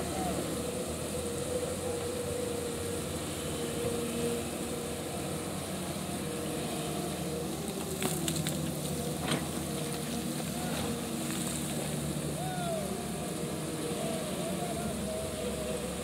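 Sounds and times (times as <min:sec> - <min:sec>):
diesel engine running: 0:00.0 - 0:16.0
rushing water hiss: 0:00.0 - 0:16.0.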